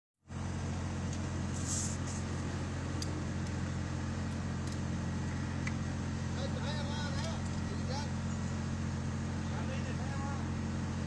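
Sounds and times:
diesel engine idling: 0:00.3 - 0:11.0.

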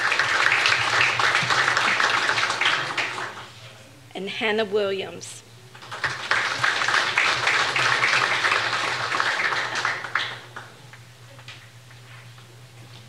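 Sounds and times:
audience applauding: 0:00.0 - 0:03.5, 0:05.8 - 0:10.8
low electrical hum: 0:00.0 - 0:13.0.

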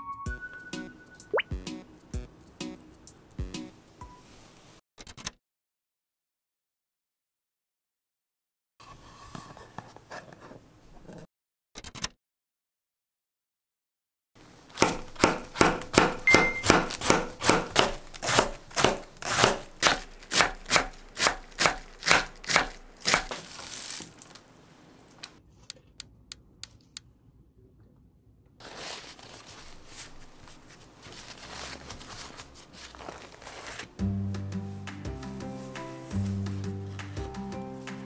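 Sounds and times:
knife chopping on wooden board: 0:14.8 - 0:23.3
paper towel rustling: 0:23.3 - 0:25.2, 0:28.6 - 0:34.0, 0:34.6 - 0:38.0.

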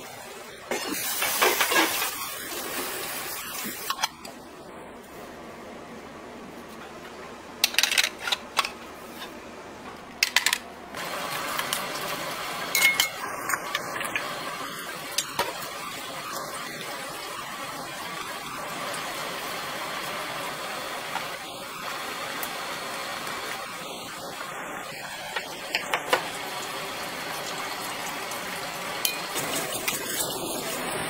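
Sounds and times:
water boiling in a pot: 0:00.0 - 0:04.7, 0:10.9 - 0:31.0.

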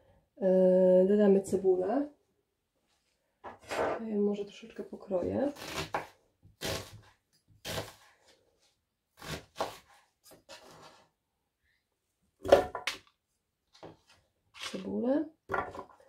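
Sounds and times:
knife cutting onion on board: 0:05.5 - 0:08.3, 0:09.2 - 0:10.9.

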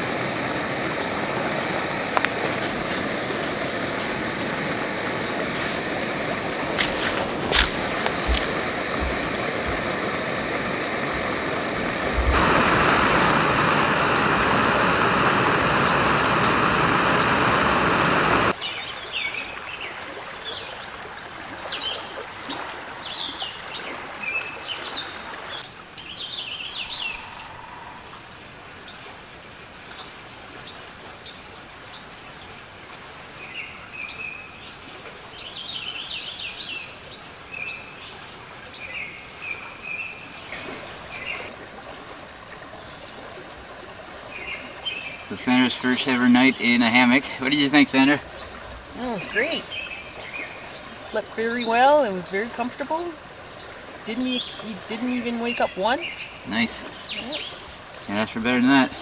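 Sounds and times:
songbirds singing and chirping: 0:00.9 - 0:01.2, 0:03.9 - 0:12.9, 0:18.5 - 0:28.2, 0:29.8 - 0:32.6, 0:33.4 - 0:41.5, 0:43.9 - 0:59.0
loud rushing noise: 0:05.8 - 0:18.5.

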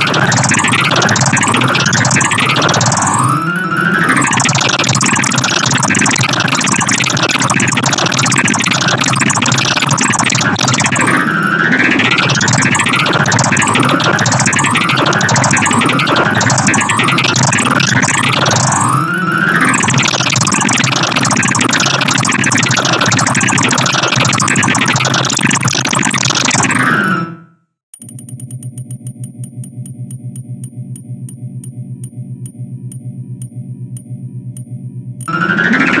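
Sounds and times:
dense synthesized piano clusters: 0:00.0 - 0:27.4, 0:35.3 - 0:36.0.

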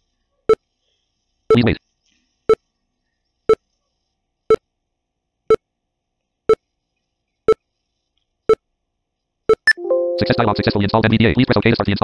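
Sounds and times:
short progress beeps: 0:09.5 - 0:10.9.

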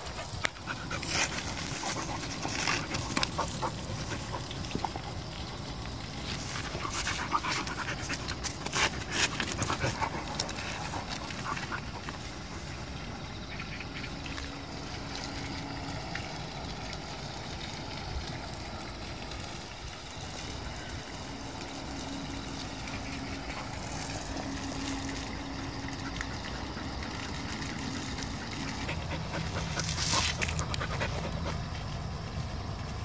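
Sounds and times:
puppy panting: 0:00.0 - 0:05.1, 0:06.4 - 0:12.4, 0:28.3 - 0:31.9
scraping rustle: 0:00.6 - 0:04.9.

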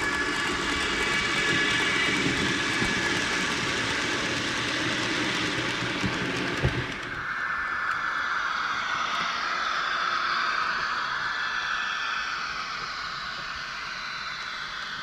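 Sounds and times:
model wagons rattling over track: 0:00.0 - 0:07.2
model locomotive motor tones: 0:00.0 - 0:15.0.

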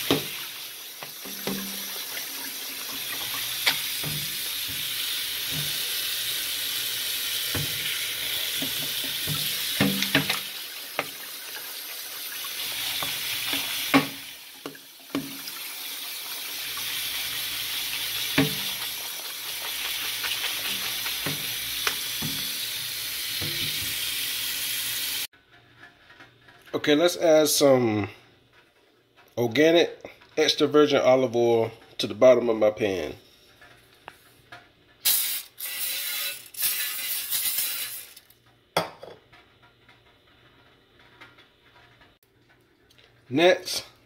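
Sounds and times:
tap water splashing in sink: 0:00.0 - 0:06.1, 0:07.3 - 0:24.7.

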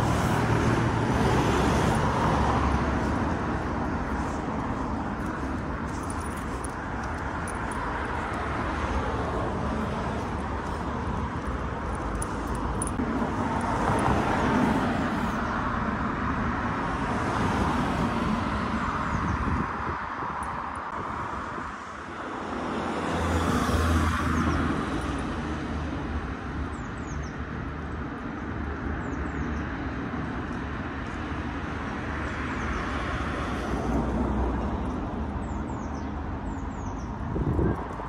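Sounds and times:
cars driving past: 0:00.0 - 0:26.6.

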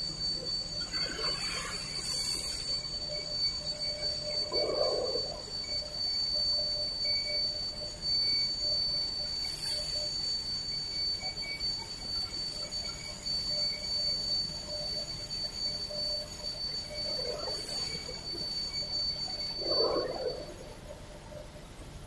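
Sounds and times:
constant low noise: 0:00.0 - 0:22.0
machinery high-pitched whine: 0:00.0 - 0:22.0.

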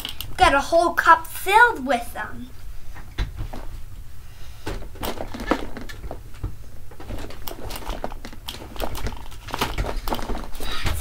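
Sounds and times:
markers clicking and clattering: 0:07.1 - 0:11.0.

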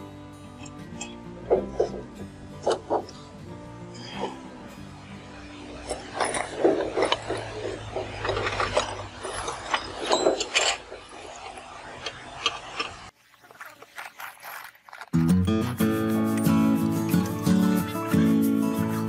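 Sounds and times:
metal tools clinking and scraping: 0:05.7 - 0:13.1.

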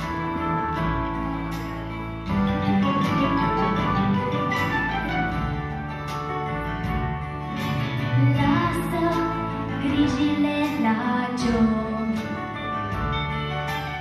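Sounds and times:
instrumental accompaniment: 0:00.0 - 0:14.0
woman singing into a microphone: 0:08.2 - 0:12.6.

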